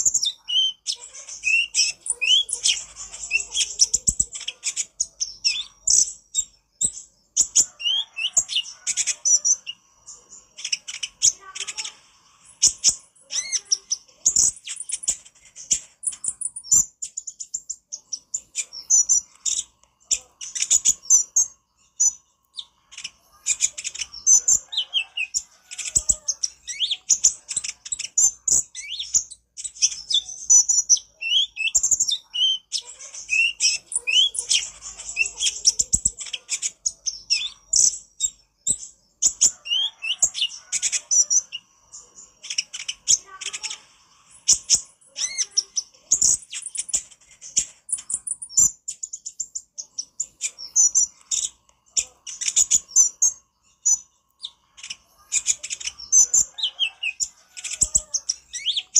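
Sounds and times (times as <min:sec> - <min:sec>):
sunbird chirping and trilling: 0:00.0 - 0:58.9.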